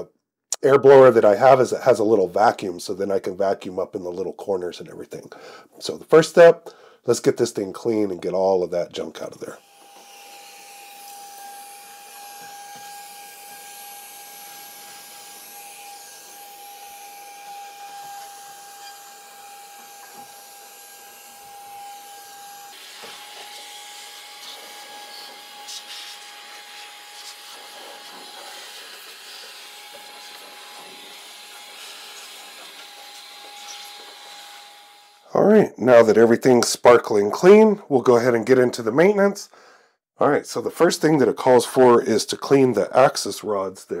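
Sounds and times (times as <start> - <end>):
electric air blower running: 9.6 - 35.3.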